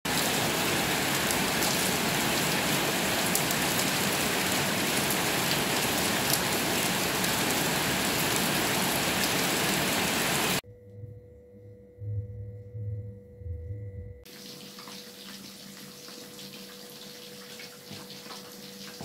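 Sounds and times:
steady rain on street and roofs: 0:00.1 - 0:10.6, 0:14.3 - 0:19.0.

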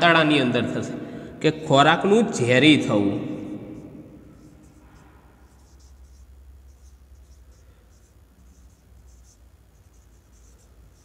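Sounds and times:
low steady hum: 0:00.0 - 0:11.0
marker squeaking on whiteboard: 0:03.5 - 0:11.0.

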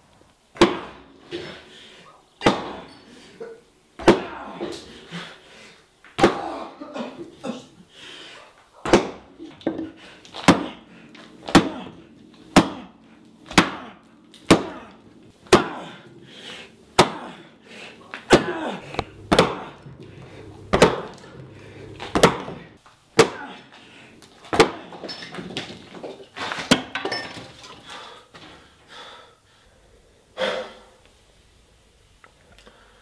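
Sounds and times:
loud wooden knocks: 0:18.3 - 0:23.4.

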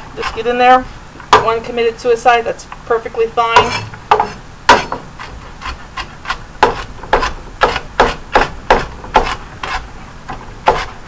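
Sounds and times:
knife chopping on wooden board: 0:01.3 - 0:01.6, 0:03.6 - 0:09.8, 0:10.6 - 0:10.9.

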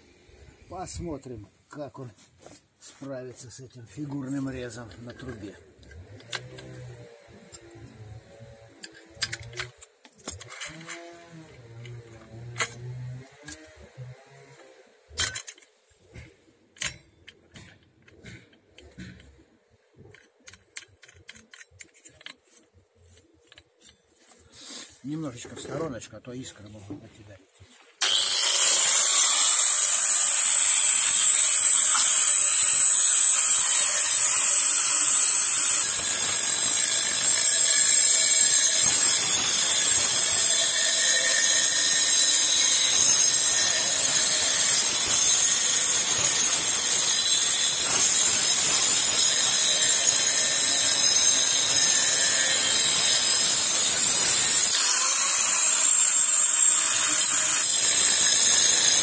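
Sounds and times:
angle grinder cutting steel pipe: 0:04.5 - 0:15.6, 0:28.0 - 0:59.0.

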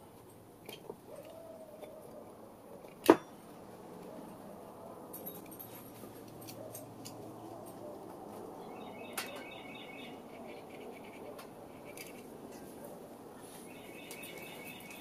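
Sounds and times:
small bird twittering: 0:08.6 - 0:10.2.

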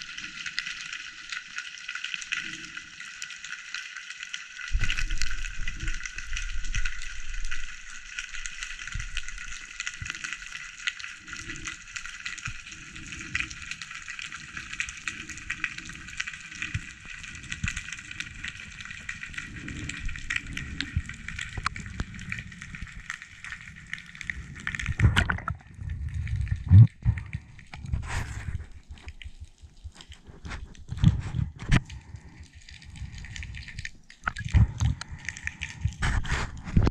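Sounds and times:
underwater crackling hiss: 0:00.0 - 0:25.6
low thumps of moving water: 0:16.6 - 0:32.1.

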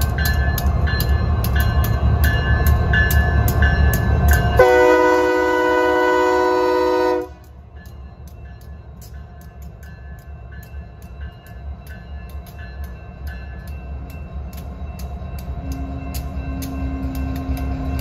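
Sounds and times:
diesel locomotive engines rumbling: 0:00.0 - 0:18.0
locomotive air horn chord: 0:04.6 - 0:07.5
sharp rhythmic clicks: 0:07.3 - 0:18.0.

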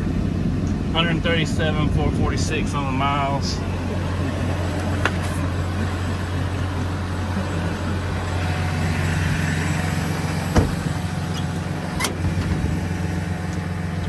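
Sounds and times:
diesel engine idling: 0:00.0 - 0:14.0
cab door shutting: 0:09.8 - 0:12.9.

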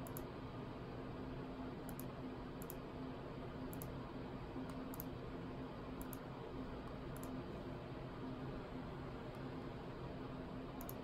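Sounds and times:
computer mouse clicks: 0:00.0 - 0:00.3, 0:01.8 - 0:02.8, 0:03.7 - 0:04.0, 0:04.7 - 0:05.1, 0:06.0 - 0:07.4, 0:10.8 - 0:11.0
low steady hum: 0:00.0 - 0:11.0.

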